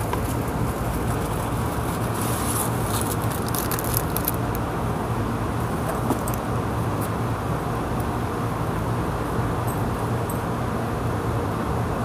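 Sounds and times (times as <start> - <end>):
faint crackles: 2.2 - 4.6.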